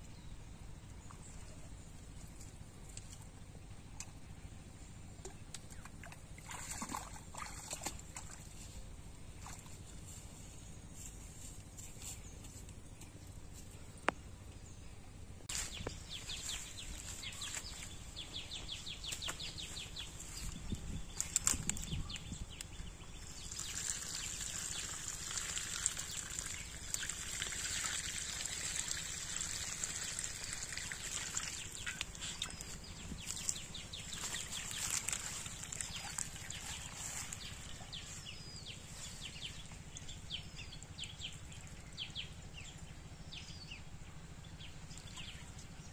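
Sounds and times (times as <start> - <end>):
water pouring onto grass: 23.2 - 38.1.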